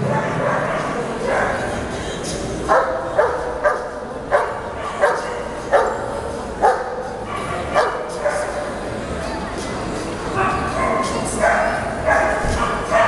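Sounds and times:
hall background noise: 0.0s - 13.0s
dog barking: 2.7s - 8.6s, 10.4s - 13.0s.

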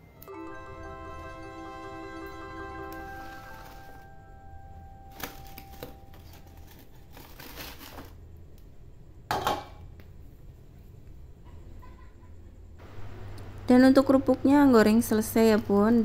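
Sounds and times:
paper rustling: 5.1s - 8.2s
crackers crackling and crunching: 5.1s - 8.7s.

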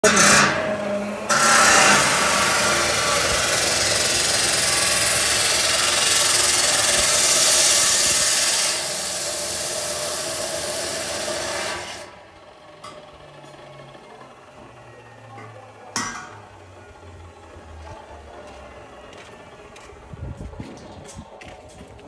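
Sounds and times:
chop saw grinding steel: 0.0s - 12.2s.

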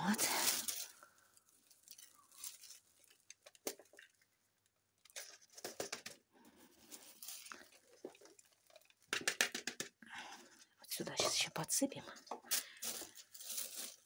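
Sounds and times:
plastic bag rustling: 0.0s - 4.3s, 6.5s - 9.1s, 12.5s - 14.0s
soil pattering into flowerpot: 0.0s - 9.1s.

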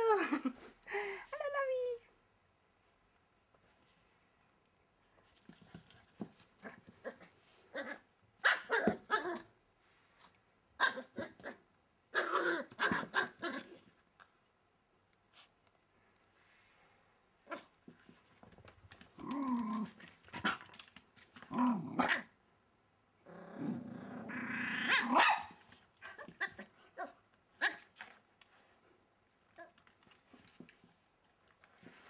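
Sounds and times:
dog growling and barking: 6.6s - 9.5s, 10.8s - 13.9s, 19.1s - 20.8s, 21.4s - 22.4s, 23.2s - 28.0s.

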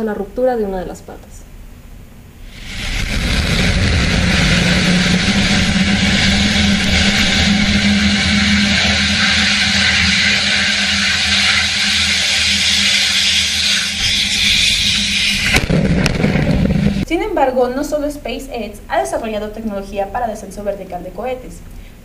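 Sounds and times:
loud rushing noise with hum: 2.4s - 17.1s.

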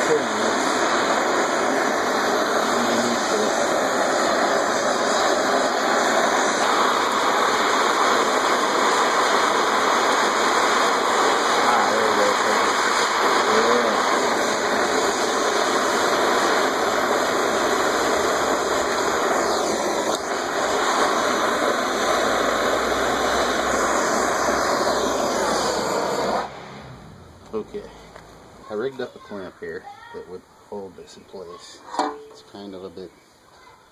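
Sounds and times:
gas torch flame hissing: 0.0s - 29.1s.

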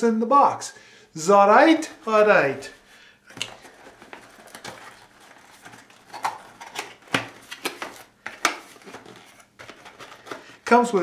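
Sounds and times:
cardboard box rustling: 3.3s - 10.4s.

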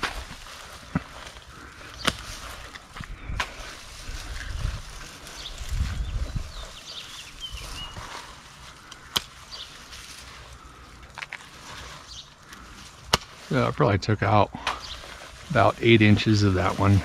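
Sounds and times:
pruners snipping a branch: 0.0s - 3.9s, 7.9s - 13.6s
pine boughs rustling: 0.0s - 17.0s.

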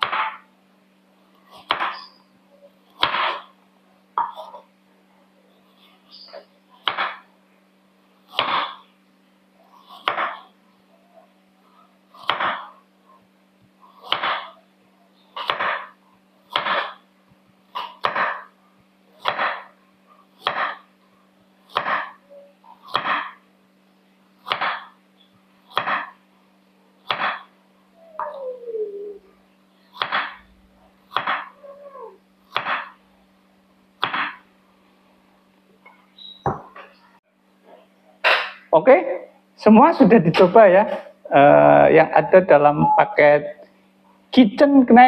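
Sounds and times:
knife slicing carrot on board: 12.2s - 12.7s, 14.1s - 14.5s, 15.4s - 15.9s, 16.5s - 17.0s, 19.2s - 19.7s, 20.4s - 20.8s, 21.7s - 22.1s, 22.9s - 23.3s, 24.5s - 24.9s, 25.8s - 26.1s, 27.1s - 27.4s, 30.0s - 30.4s, 31.1s - 31.5s, 32.5s - 32.9s, 34.0s - 34.4s.

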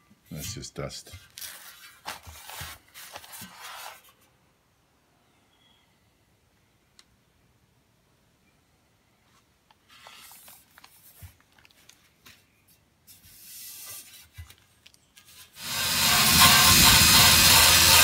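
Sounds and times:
rubbing metal mudguard: 15.2s - 18.0s
drill sanding metal: 15.6s - 18.0s.

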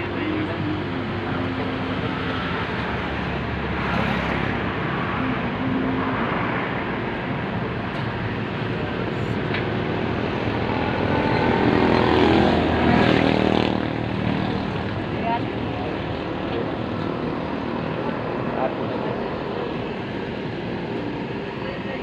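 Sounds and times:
vehicle engines running: 0.0s - 22.0s
vehicle passing by: 8.8s - 19.6s.

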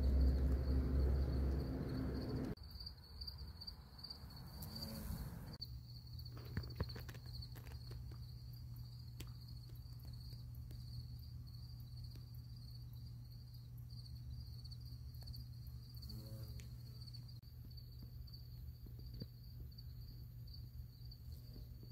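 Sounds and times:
low steady hum: 0.0s - 2.9s
crickets chirring: 0.0s - 21.9s.

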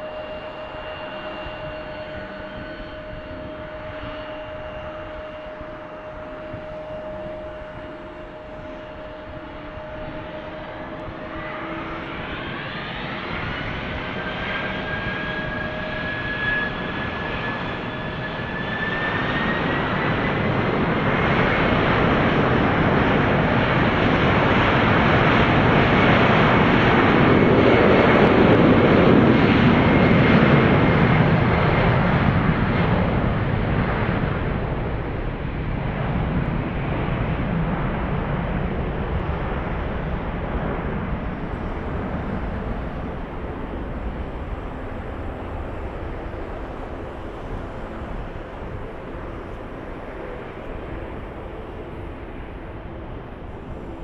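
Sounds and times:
loud jet rumble: 0.0s - 54.0s
jet engines spooling up: 38.8s - 54.0s.

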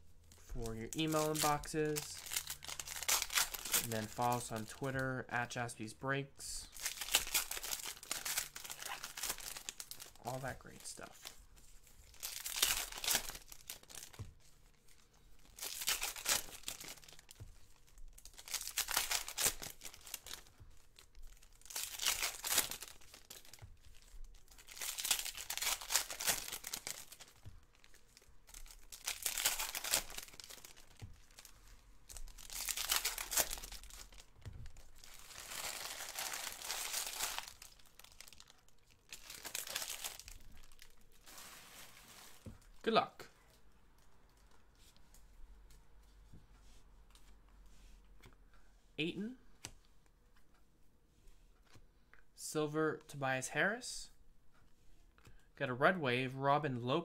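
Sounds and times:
foil wrappers tearing and crinkling: 0.6s - 4.8s, 6.8s - 10.8s, 12.1s - 14.2s, 15.4s - 17.4s, 18.2s - 31.5s, 32.2s - 42.4s.

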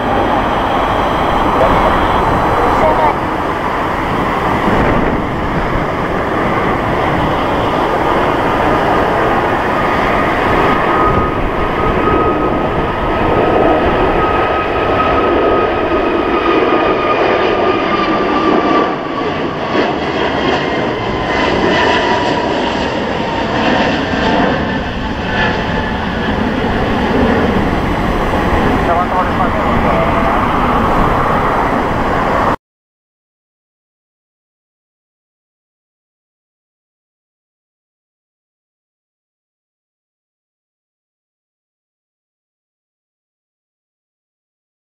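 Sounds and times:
high engine whine: 0.0s - 32.6s
jet engines at takeoff power: 0.0s - 32.6s.

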